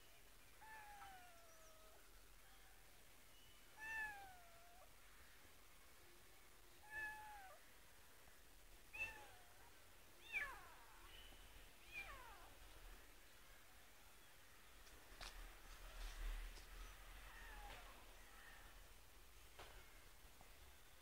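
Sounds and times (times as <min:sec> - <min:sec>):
kitten meowing: 0:03.8 - 0:04.9, 0:06.8 - 0:07.6, 0:08.9 - 0:09.5, 0:10.2 - 0:10.8.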